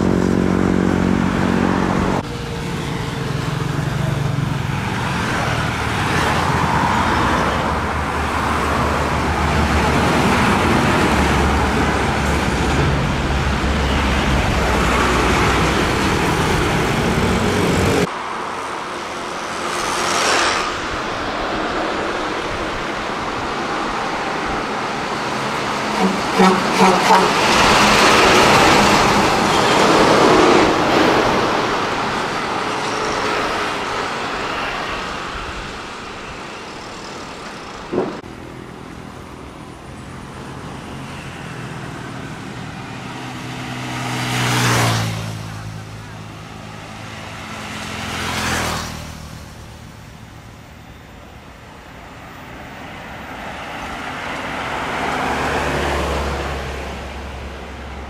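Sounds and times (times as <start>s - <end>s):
motorcycles passing: 0.0s - 51.2s
diesel truck passing: 0.0s - 58.0s.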